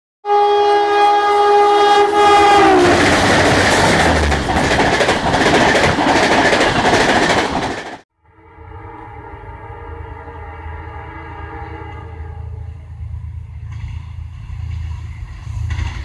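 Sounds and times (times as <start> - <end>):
locomotive horn chord: 0.2 - 3.1, 8.1 - 13.3
train coaches rushing and rattling: 2.1 - 8.0, 13.6 - 16.0.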